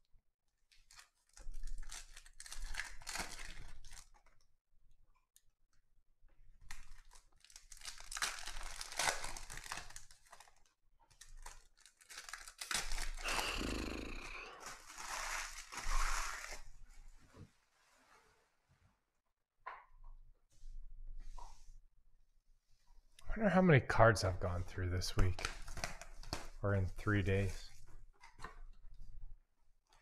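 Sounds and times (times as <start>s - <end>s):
foil wrappers tearing and crinkling: 0.7s - 4.3s, 6.7s - 16.7s.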